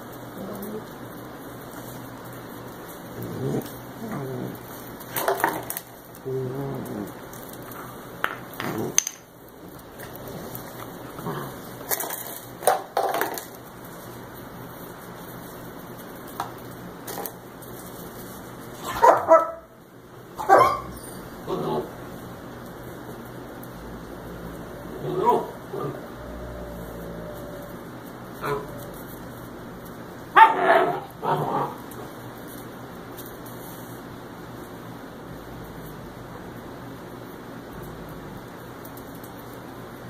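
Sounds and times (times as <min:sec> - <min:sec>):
puppies barking and yipping: 0:18.8 - 0:19.7, 0:20.3 - 0:22.0, 0:24.5 - 0:29.4, 0:30.3 - 0:31.9.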